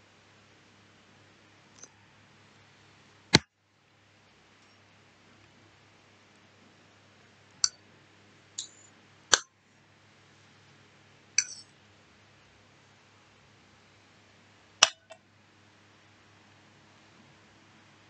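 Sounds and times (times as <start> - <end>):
fork clinking against a plate: 11.4 - 11.7.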